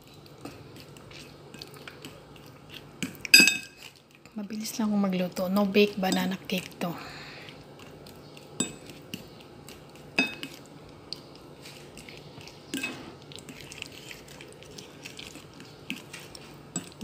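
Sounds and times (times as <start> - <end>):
fork mashing bananas: 0.0 - 6.8, 7.4 - 17.0
fork clinking against bowl: 3.3 - 3.8, 8.6 - 8.9, 10.2 - 10.6, 12.7 - 13.1.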